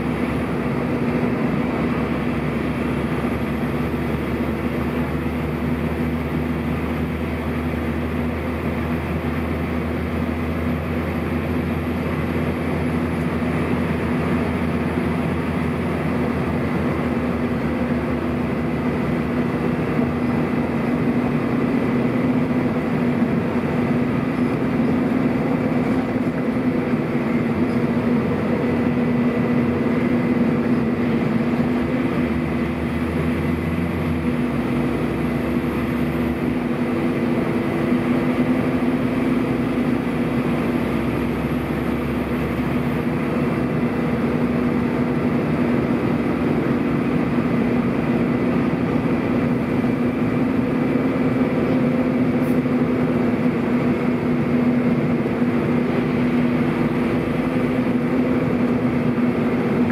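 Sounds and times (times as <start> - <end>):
cooling fans high tone: 0.0 - 59.9
diesel bus engine droning: 0.0 - 59.9.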